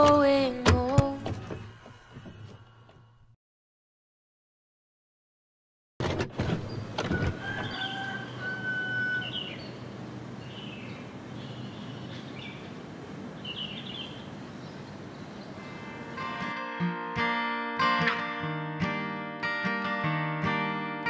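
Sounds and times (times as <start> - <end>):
birds chirping: 6.6 - 16.5
steady background hiss: 8.2 - 16.5.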